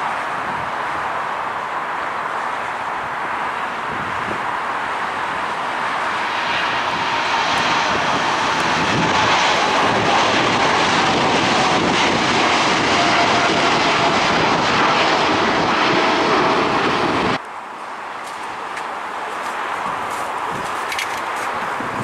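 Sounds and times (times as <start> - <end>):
jet engine whine: 0.0 - 17.4
jet engines roaring: 0.0 - 17.4.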